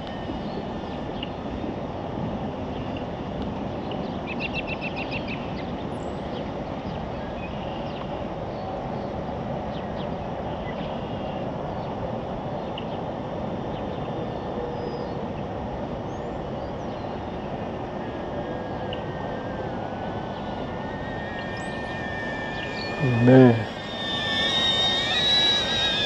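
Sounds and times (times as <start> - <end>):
outdoor rushing noise: 18.6 - 26.0
faint bird chirps: 19.8 - 26.0
songbird trilling: 20.2 - 26.0.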